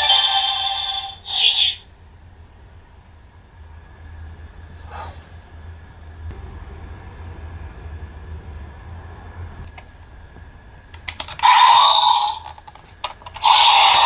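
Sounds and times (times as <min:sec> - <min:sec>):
electronic toy sound effect: 0:00.0 - 0:01.8, 0:11.4 - 0:12.6, 0:13.4 - 0:14.0
plastic toy clicks: 0:10.9 - 0:14.0.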